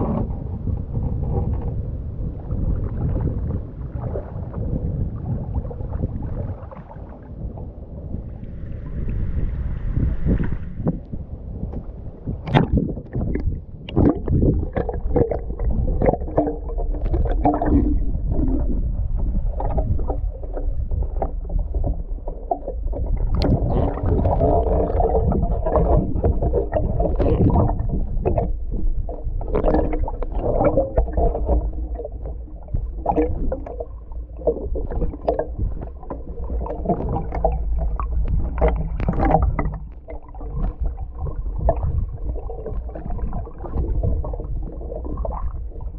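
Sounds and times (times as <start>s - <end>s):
low rumble: 0.0s - 45.9s
water sloshing and gurgling: 0.0s - 45.9s
small knocks and splashes: 12.4s - 18.6s, 29.4s - 44.5s.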